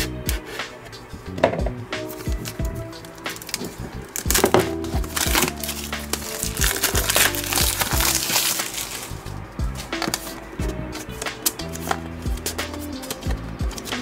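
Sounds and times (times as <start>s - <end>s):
soft background music: 0.0s - 14.0s
packaging crinkling and rustling: 2.1s - 9.2s.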